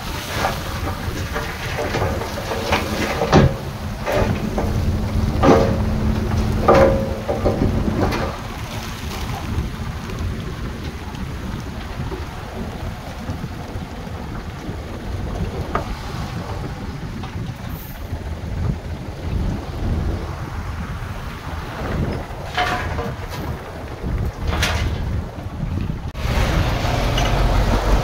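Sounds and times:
low diesel rumble: 0.0 - 28.0
sharp metallic clanks: 0.3 - 8.5, 22.5 - 23.6.

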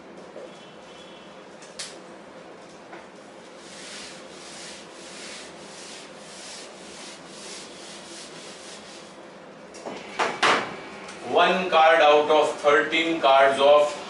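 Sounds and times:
eraser rubbing whiteboard: 3.5 - 9.2.

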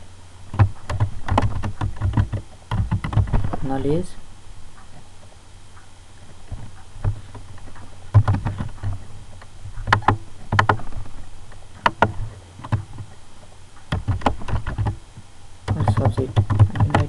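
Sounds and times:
low steady hum: 0.0 - 17.0
computer keyboard keys clicking: 0.5 - 3.4, 7.8 - 9.0, 9.8 - 11.0, 13.9 - 15.0, 15.7 - 17.0.

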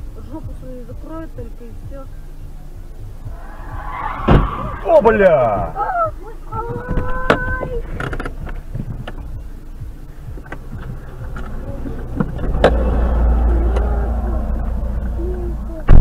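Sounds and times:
low rumble: 0.0 - 16.0
traffic noise: 0.0 - 16.0.

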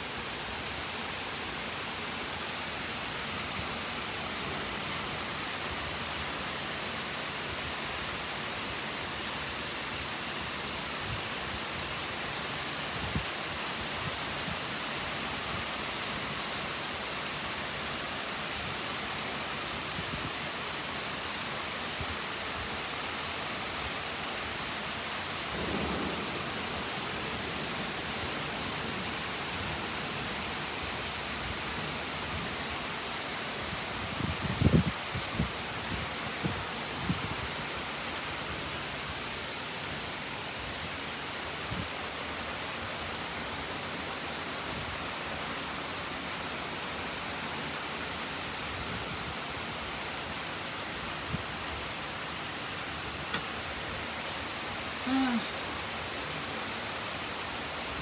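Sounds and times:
heavy rain pouring: 0.0 - 58.0
low thunder rumble: 25.5 - 29.1.

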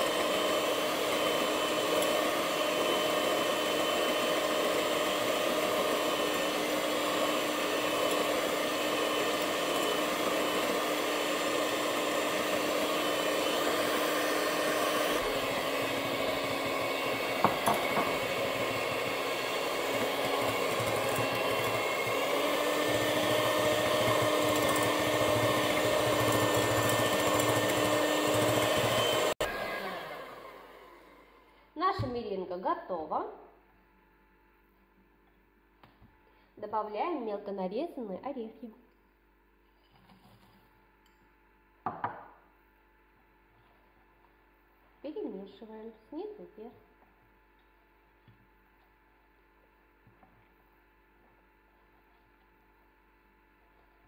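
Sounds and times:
electric hand mixer running: 0.0 - 31.4.

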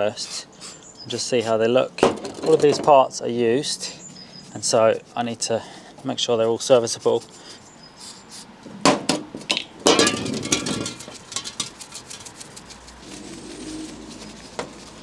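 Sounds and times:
rubbing with paper towel: 6.4 - 8.5, 11.9 - 15.0.

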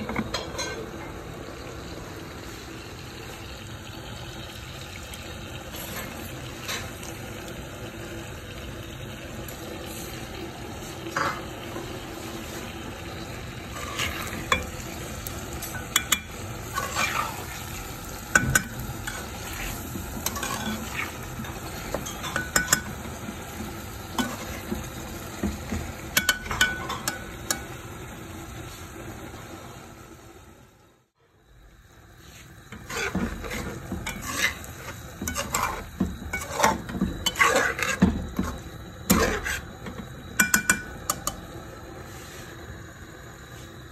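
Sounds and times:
chicken sizzling in a pan: 0.0 - 43.9
metal spatula scraping pan: 13.7 - 14.8, 15.6 - 17.7, 18.4 - 22.9, 24.2 - 24.8, 32.7 - 39.7.

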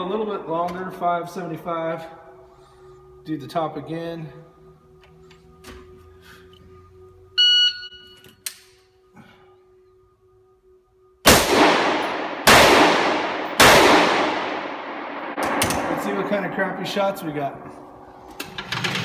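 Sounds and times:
shot timer beep: 7.4 - 8.2
rifle shots echoing: 11.2 - 17.9.

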